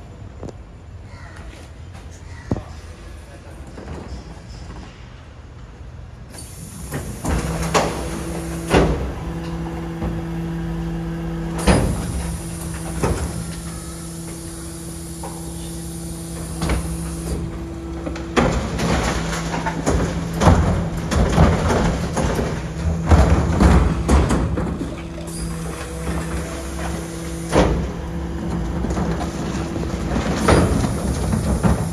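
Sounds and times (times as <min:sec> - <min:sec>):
garbage truck hydraulics humming: 0:06.2 - 0:31.9
knocks of metal bins: 0:16.4 - 0:31.9.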